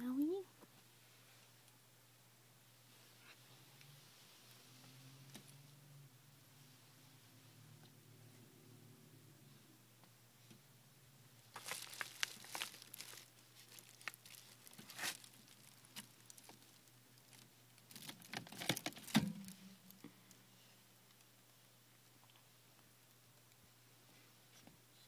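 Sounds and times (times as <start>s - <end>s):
cat rustling through clothes: 11.5s - 16.9s.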